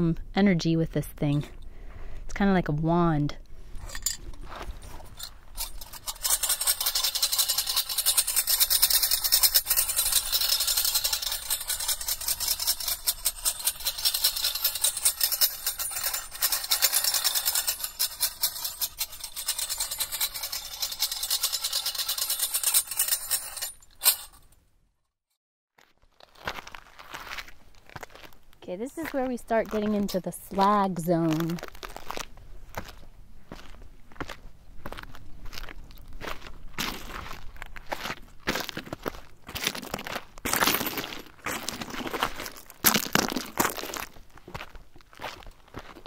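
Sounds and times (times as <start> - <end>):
sistrum jingles rattling: 3.8 - 24.6.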